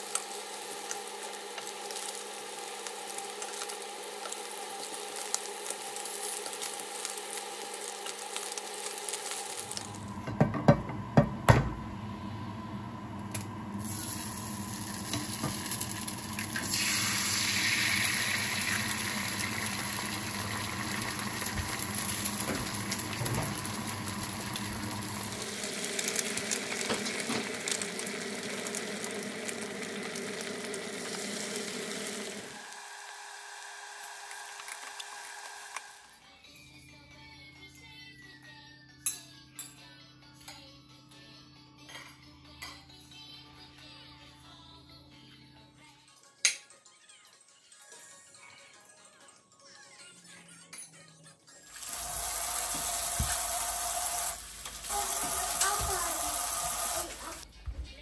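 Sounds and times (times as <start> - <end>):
meat sizzling in a frying pan: 0.0 - 9.9, 13.8 - 36.1, 51.8 - 57.4
eggs frying in hot oil: 0.0 - 10.0, 13.4 - 36.2, 51.7 - 57.5.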